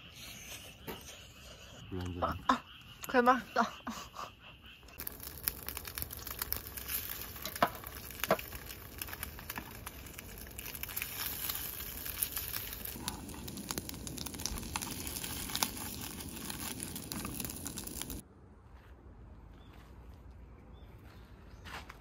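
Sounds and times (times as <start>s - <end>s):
food sizzling in oil: 5.0s - 18.2s.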